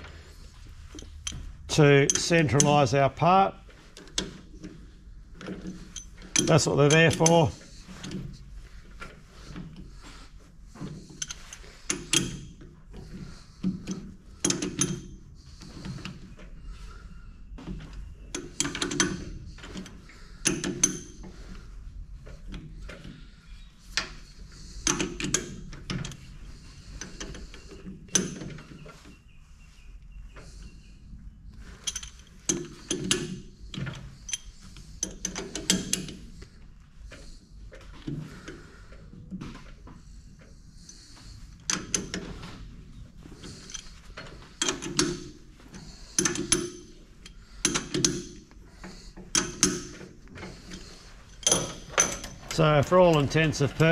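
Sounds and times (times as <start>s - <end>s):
metallic clicks and clunks of chuck: 0.9s - 3.0s, 5.4s - 8.2s, 18.4s - 21.2s, 43.4s - 53.3s.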